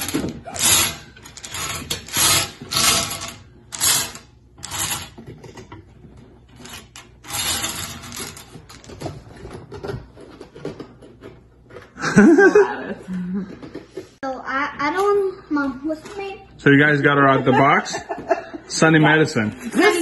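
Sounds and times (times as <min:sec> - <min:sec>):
bingo cage balls rattling: 0:00.0 - 0:11.3.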